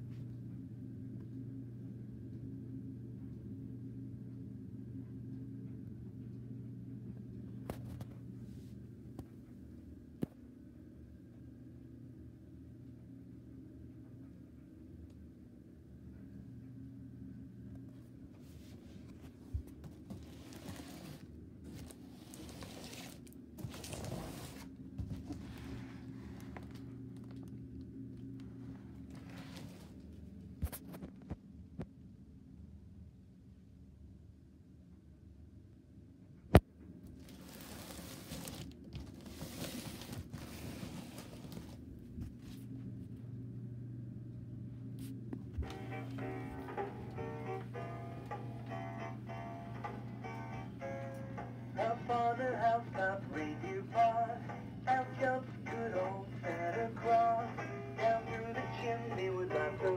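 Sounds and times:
low steady hum: 0.0 - 59.9
cardboard box rustling and scraping: 20.1 - 26.5, 37.2 - 42.4.

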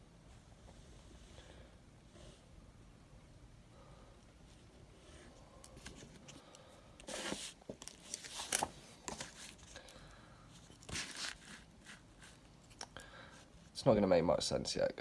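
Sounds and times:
paper rustling: 7.1 - 9.8, 10.6 - 12.8.

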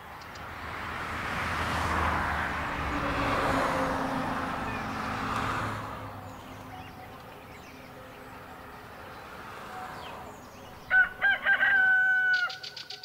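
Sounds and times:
rooster crowing: 10.8 - 13.0.

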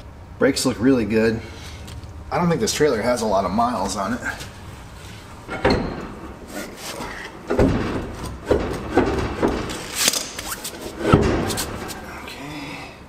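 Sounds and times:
wheel clunking and scraping on hub: 3.1 - 12.2.

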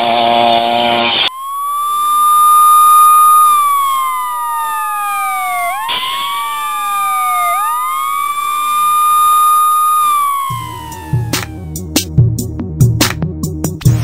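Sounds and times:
wailing siren: 1.2 - 11.8.

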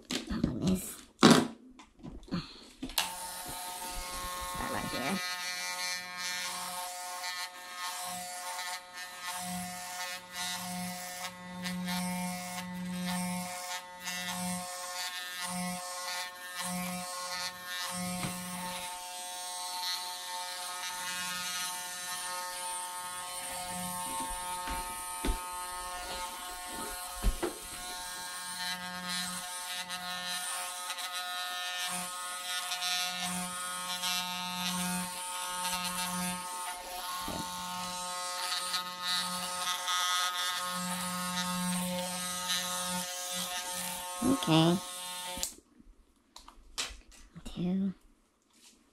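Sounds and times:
electric clipper buzzing: 3.0 - 45.6.

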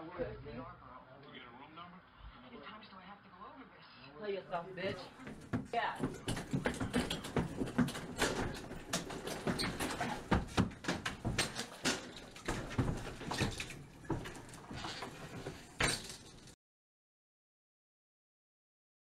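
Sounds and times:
door knocks and rattles: 5.0 - 16.5.

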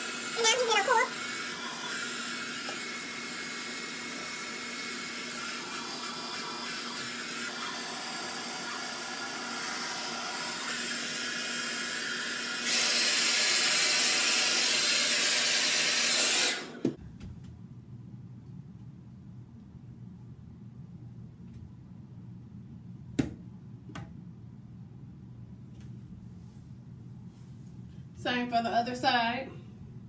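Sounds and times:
hair dryer blowing: 0.0 - 17.0.

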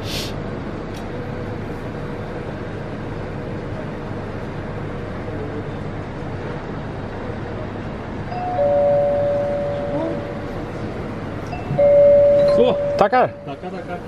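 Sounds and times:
low hum and hiss: 0.2 - 14.0
faint steady tone: 8.3 - 14.0.

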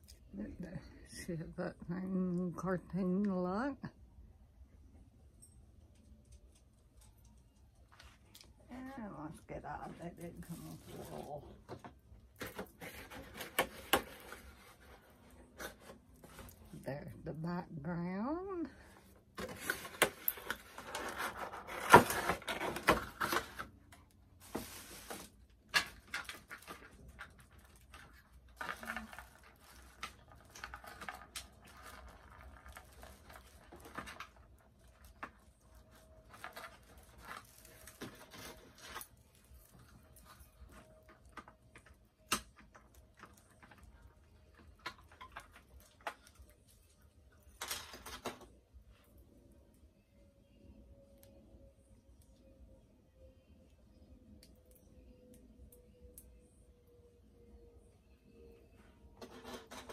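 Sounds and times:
packaging rustling and crinkling: 18.9 - 48.5.

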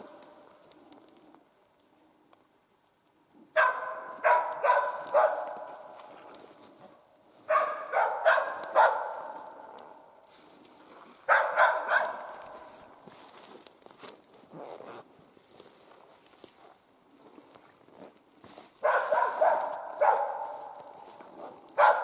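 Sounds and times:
dog barking with echo: 3.6 - 6.0, 7.5 - 10.0, 11.3 - 12.7, 18.8 - 21.0, 21.8 - 22.0.

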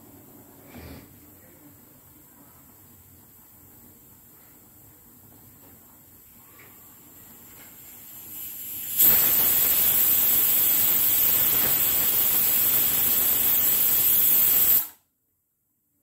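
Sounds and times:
pressure cooker whistling: 8.5 - 15.0.

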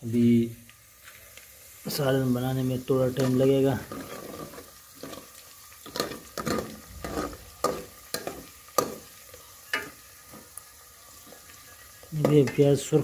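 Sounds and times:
onions sizzling in oil: 0.0 - 13.0
metal spoon scraping pot: 3.9 - 5.2, 5.9 - 9.0.

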